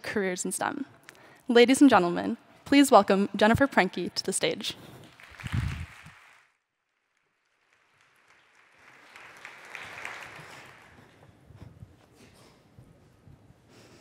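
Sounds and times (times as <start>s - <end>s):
audience applause: 5.0s - 11.4s.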